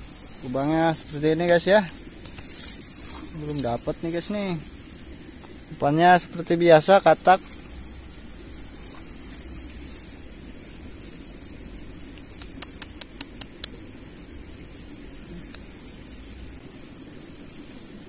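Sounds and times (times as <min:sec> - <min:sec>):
insects chirring: 0:00.0 - 0:18.0
sharp clicks: 0:12.1 - 0:13.8.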